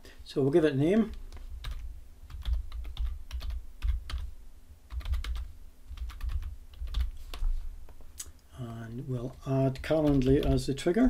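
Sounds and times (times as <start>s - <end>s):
computer keyboard typing: 1.0s - 4.3s, 4.9s - 7.5s, 9.7s - 10.7s.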